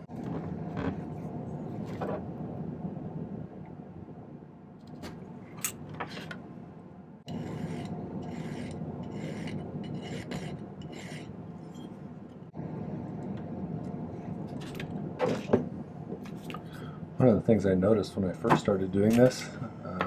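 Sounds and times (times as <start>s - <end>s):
hand file strokes on metal: 7.3s - 11.9s.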